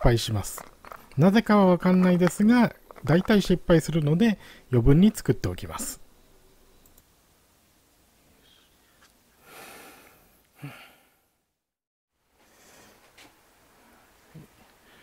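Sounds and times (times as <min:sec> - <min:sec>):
person exhaling: 0:09.4 - 0:11.4.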